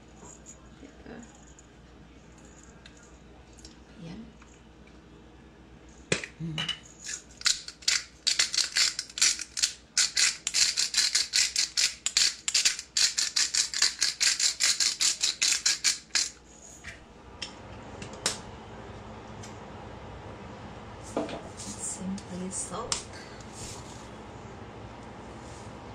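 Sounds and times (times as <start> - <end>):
pepper grinder clicking: 7.1 - 16.4.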